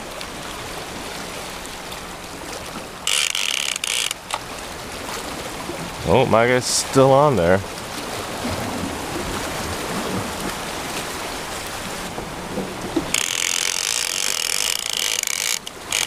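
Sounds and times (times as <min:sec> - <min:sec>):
fishing reel ratchet clicking: 0:03.1 - 0:04.4, 0:13.1 - 0:16.0
waves washing against rocks: 0:04.2 - 0:16.0.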